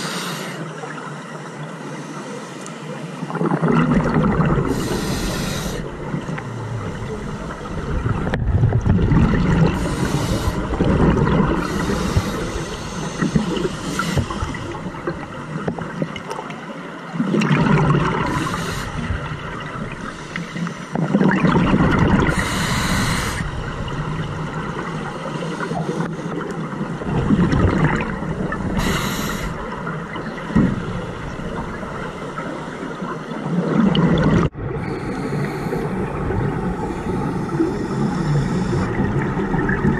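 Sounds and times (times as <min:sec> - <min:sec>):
low rumble of water: 0:03.1 - 0:39.9
exhaled bubbles gurgling: 0:03.2 - 0:39.9.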